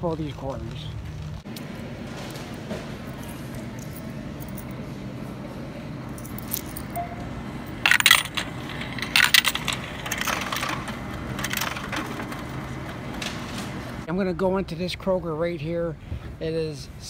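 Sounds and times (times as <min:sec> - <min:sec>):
coins clinking through coin slot: 0:06.1 - 0:13.8.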